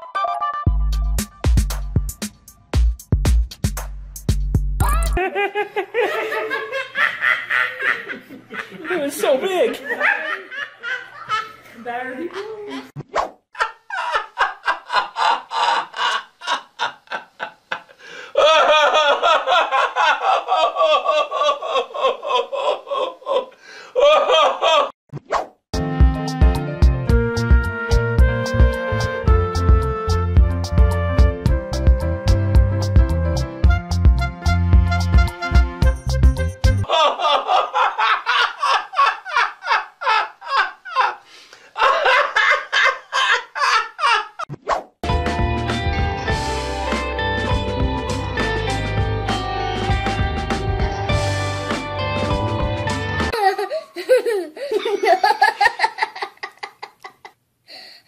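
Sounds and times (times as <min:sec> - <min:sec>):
laughter in pitched bursts: 0:04.9 - 0:09.1, 0:09.8 - 0:11.6, 0:13.6 - 0:24.9, 0:36.8 - 0:41.2, 0:41.8 - 0:44.5, 0:53.3 - 0:57.4.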